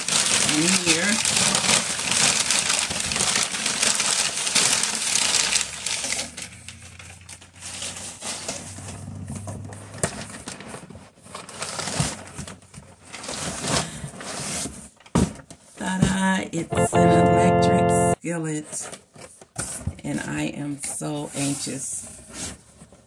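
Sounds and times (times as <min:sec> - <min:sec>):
packing paper crumpling: 0:00.0 - 0:08.7, 0:10.4 - 0:13.8.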